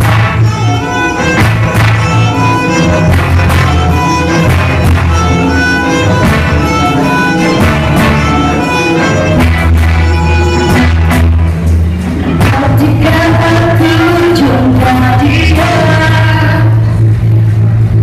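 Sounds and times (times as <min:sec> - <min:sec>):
violin melody: 0:00.0 - 0:11.5
strummed acoustic guitar: 0:00.0 - 0:16.5
keyboard: 0:00.0 - 0:18.0
low bass: 0:00.0 - 0:18.0.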